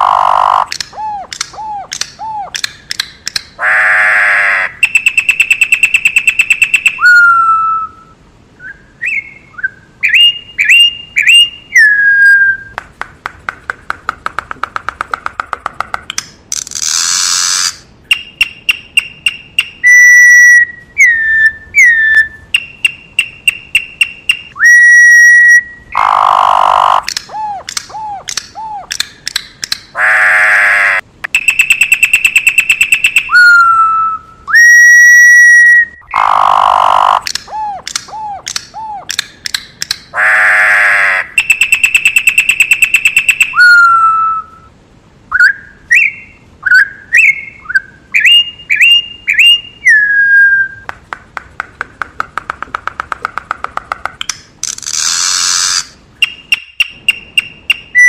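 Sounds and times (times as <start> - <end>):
bird whistling song: 0.0 - 2.6, 4.6 - 12.8, 16.9 - 29.0, 31.3 - 39.2, 41.4 - 44.7, 45.3 - 50.9, 55.5 - 58.0
harsh rasping bird calls: 0.0 - 8.0, 16.5 - 29.2, 29.8 - 34.1, 36.0 - 44.5
rapidly repeated bird notes: 0.0 - 8.0, 8.9 - 44.5, 45.4 - 50.1, 50.7 - 58.0.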